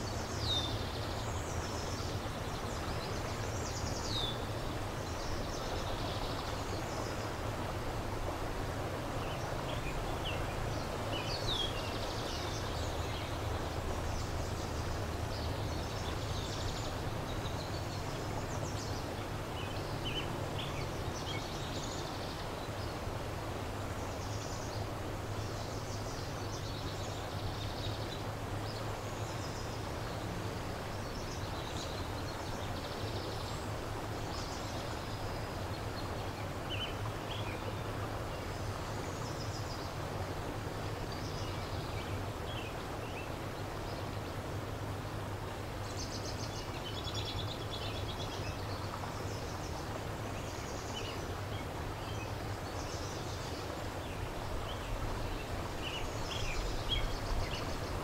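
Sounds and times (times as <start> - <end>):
river water flowing: 0.0 - 58.0
small birds chirping: 45.8 - 58.0.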